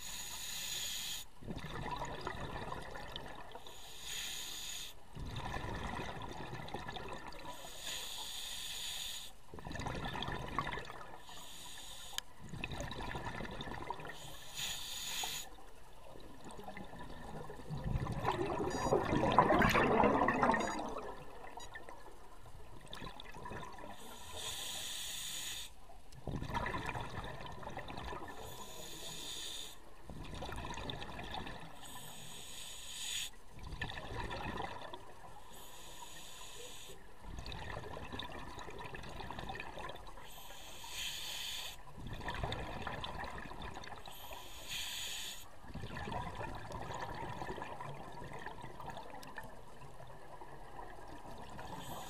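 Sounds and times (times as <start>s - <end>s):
regulator hissing inhalation: 0.0s - 1.3s, 3.7s - 5.0s, 7.5s - 9.3s, 11.2s - 12.3s, 14.2s - 15.6s, 24.0s - 25.8s, 28.4s - 29.8s, 31.9s - 33.4s, 35.5s - 37.0s, 40.3s - 41.8s, 44.1s - 45.5s
rush of exhaled bubbles: 1.5s - 3.6s, 5.2s - 7.5s, 9.6s - 11.2s, 12.4s - 14.1s, 16.2s - 21.8s, 26.2s - 28.4s, 30.1s - 31.7s, 33.6s - 35.2s, 37.3s - 40.2s, 41.9s - 44.3s, 45.7s - 49.6s.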